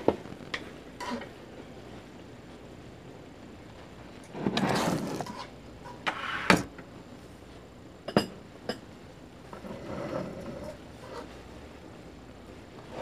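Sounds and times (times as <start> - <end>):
utensils scraping on a pan: 1.0 - 1.3, 4.3 - 6.5.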